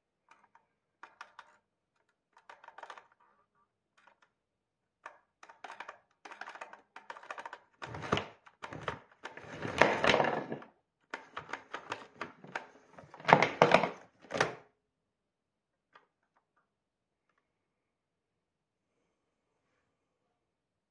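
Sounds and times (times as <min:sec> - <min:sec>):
vacuum cord rewinding and rattling: 0:05.4 - 0:14.6.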